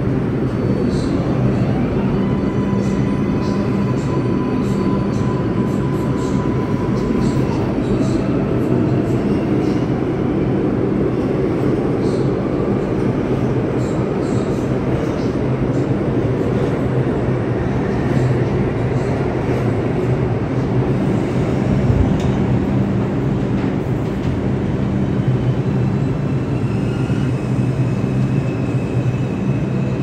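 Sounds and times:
subway train wheels rumbling: 0.0s - 30.0s.

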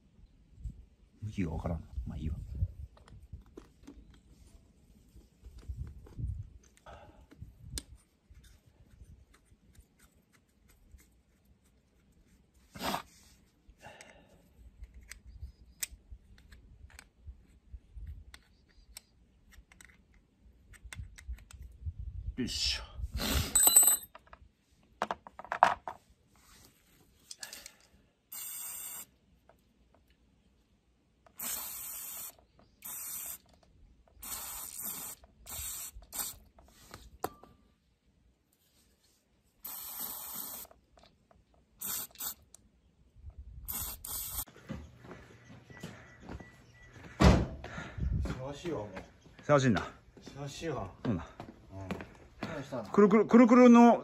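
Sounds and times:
aerosol spray bursts: 28.3s - 29.1s, 31.4s - 33.5s, 34.2s - 36.4s, 39.6s - 40.7s, 41.8s - 42.4s, 43.7s - 44.5s
short hiss: 28.3s - 29.1s, 31.4s - 33.4s.

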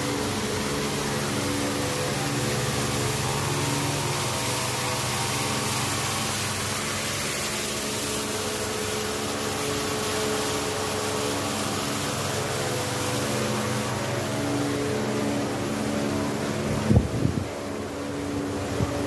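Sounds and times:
machine hum: 0.0s - 19.0s
steady hiss: 0.0s - 19.0s.

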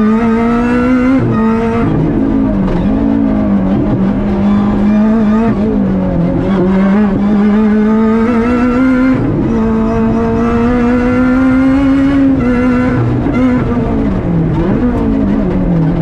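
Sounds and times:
car engine revving hard: 0.0s - 16.0s.

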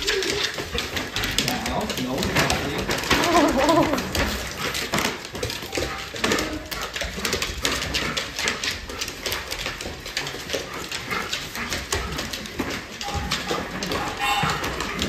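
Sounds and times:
dog claws clicking on hardwood floor: 0.0s - 15.0s.

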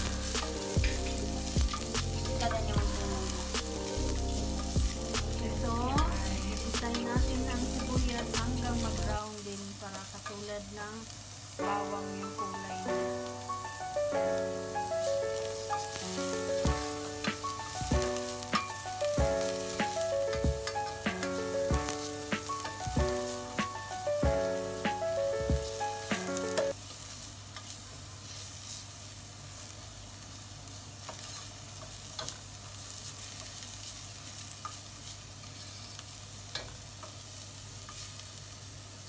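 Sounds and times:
background music with beat: 0.0s - 9.0s, 12.9s - 26.7s
onions sizzling in hot oil: 0.0s - 39.0s.

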